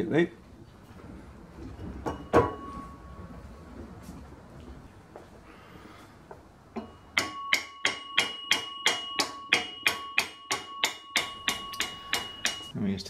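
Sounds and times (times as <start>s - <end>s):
metal ringing: 1.7s - 3.4s, 6.7s - 12.7s
mallet tapping metal shaft: 6.8s - 12.7s.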